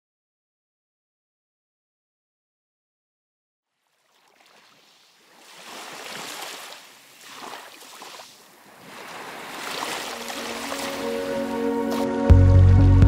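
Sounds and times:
sea surf washing: 4.0s - 12.3s.

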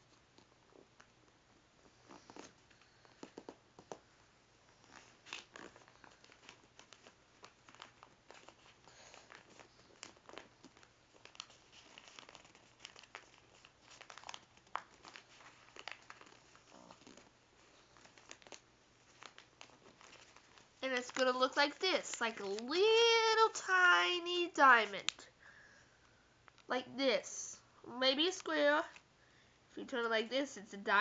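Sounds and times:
paper rustling and crinkling: 2.0s - 24.1s.

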